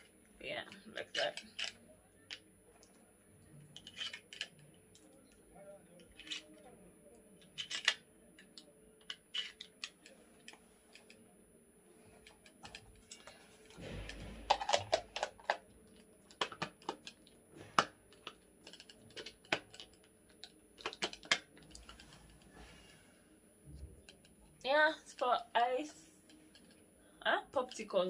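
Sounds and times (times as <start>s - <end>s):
plastic clicks and knocks: 16.3s - 22.0s.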